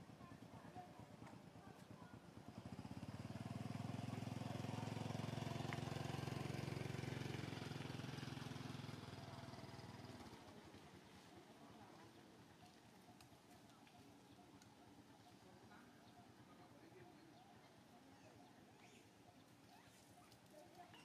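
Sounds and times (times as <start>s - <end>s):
vehicle engine passing by: 2.6s - 10.6s.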